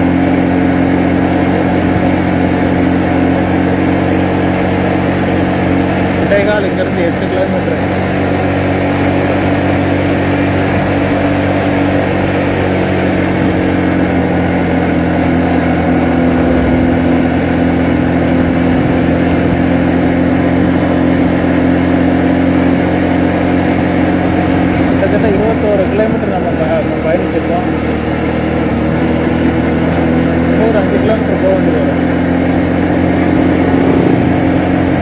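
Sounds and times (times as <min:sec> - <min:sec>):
motorcycle engine cruising: 0:00.0 - 0:35.0
road and wind noise: 0:00.0 - 0:35.0.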